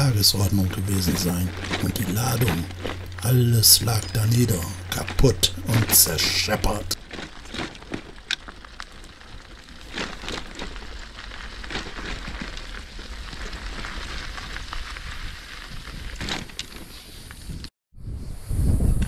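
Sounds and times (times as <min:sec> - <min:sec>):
low rumble: 0:00.0 - 0:09.6
bicycle tyres crunching on gravel: 0:00.0 - 0:17.7.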